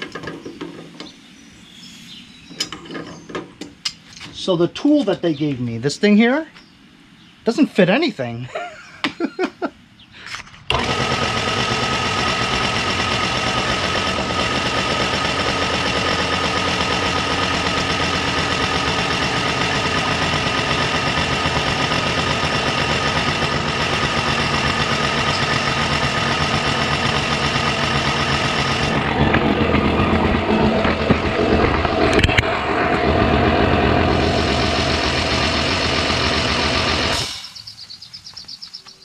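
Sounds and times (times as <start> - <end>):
electric air compressor running: 10.7 - 37.7.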